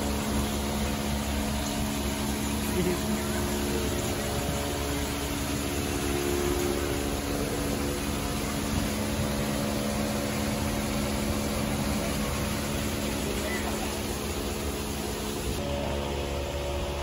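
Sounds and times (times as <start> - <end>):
motor humming: 0.0 - 17.0.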